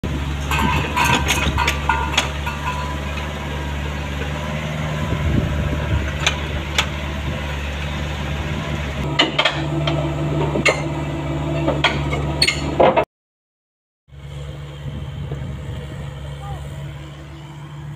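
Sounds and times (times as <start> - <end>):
diesel engine running: 0.0 - 13.0, 14.1 - 17.9
metallic clanks and knocks: 0.4 - 3.4, 6.1 - 7.0, 9.1 - 10.9, 11.5 - 13.0.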